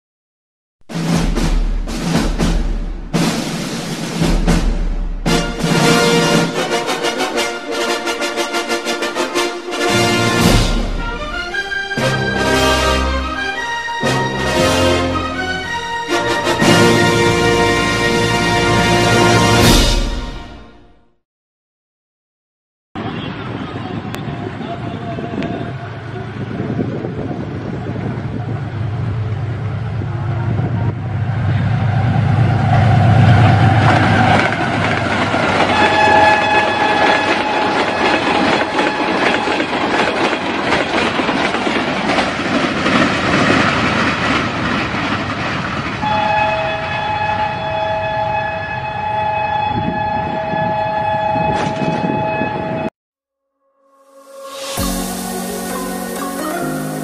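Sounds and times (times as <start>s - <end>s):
locomotive engine rumble: 1.1s - 18.9s, 23.5s - 48.4s, 54.8s - 57.0s
locomotive horn blasts: 5.3s - 21.0s, 35.5s - 39.8s, 46.0s - 52.9s
train wheels on rails: 25.5s - 47.0s, 54.5s - 57.0s.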